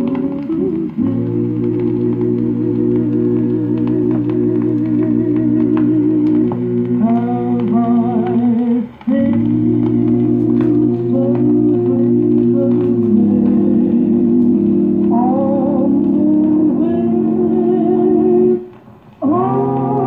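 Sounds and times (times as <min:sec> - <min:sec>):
choir voices: 0:00.0 - 0:20.0
organ chords: 0:00.0 - 0:20.0.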